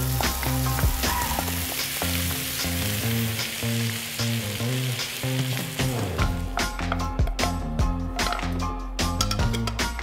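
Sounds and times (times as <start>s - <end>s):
spinach sizzling in oil: 0.0s - 6.4s
background music: 0.0s - 10.0s.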